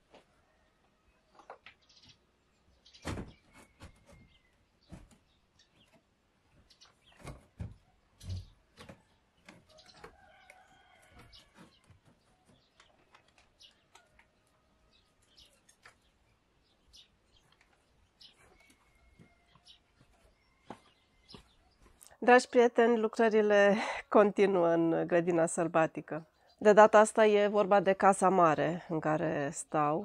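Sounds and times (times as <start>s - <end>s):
faint chickens clucking: 3.2s - 16.2s, 16.9s - 22.8s.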